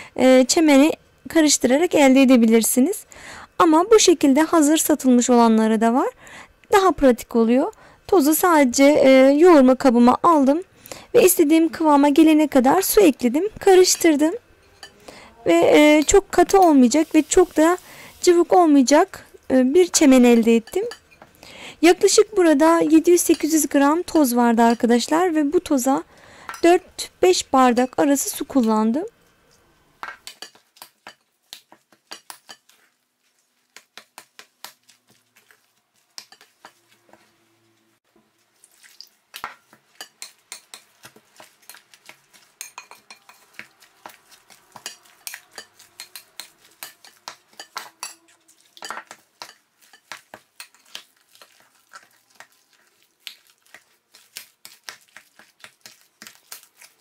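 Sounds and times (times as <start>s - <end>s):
paste kneaded by hand: 33.2s - 37.1s, 50.1s - 57.0s.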